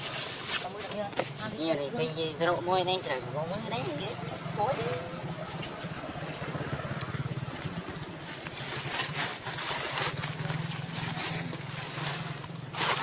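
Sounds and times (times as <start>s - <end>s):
rustling scrapes: 0.0s - 1.8s, 7.4s - 13.0s
small engine humming: 4.0s - 13.0s.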